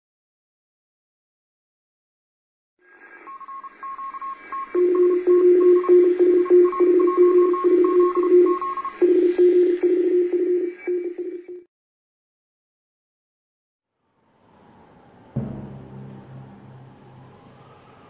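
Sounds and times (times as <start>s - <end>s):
high morse code beeps: 3.3s - 11.6s
low morse code beeps: 3.3s - 11.6s.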